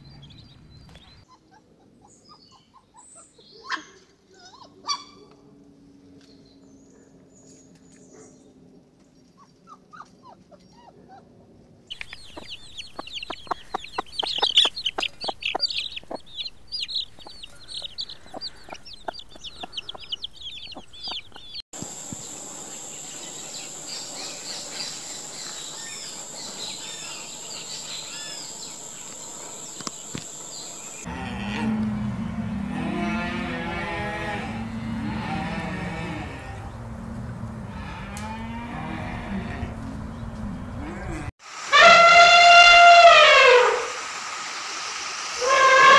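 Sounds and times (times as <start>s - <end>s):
chicks peeping: 11.9s - 31.1s
steady high whine: 21.8s - 31.0s.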